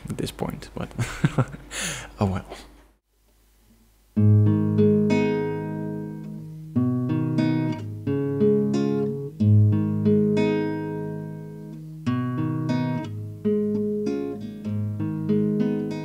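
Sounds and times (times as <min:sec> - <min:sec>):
classical guitar fingerstyle: 0:04.2 - 0:16.0.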